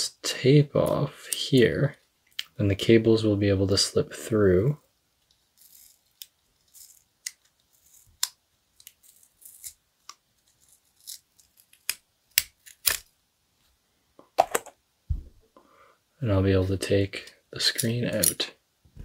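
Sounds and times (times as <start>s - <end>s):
adhesive tape being peeled: 5.5s - 13.1s.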